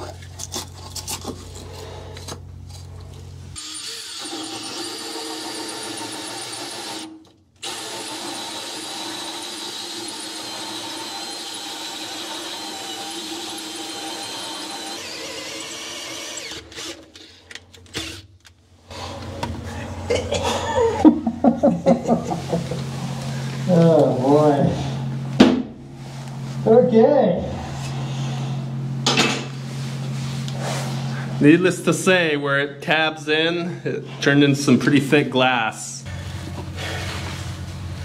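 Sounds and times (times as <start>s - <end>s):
cordless drill with hole saw: 3.6s - 18.3s.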